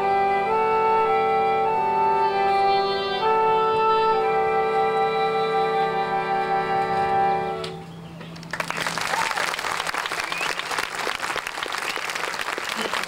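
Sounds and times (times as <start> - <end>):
big band sustained chord: 0.0 - 8.0
audience applause: 8.4 - 13.0.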